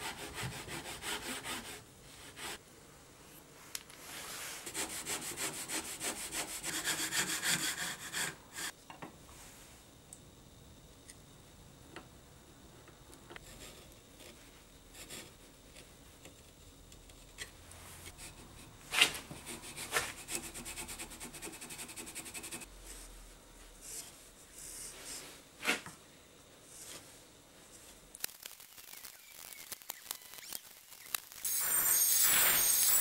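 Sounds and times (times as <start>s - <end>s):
hand tool scraping wood: 4.6s - 8.7s.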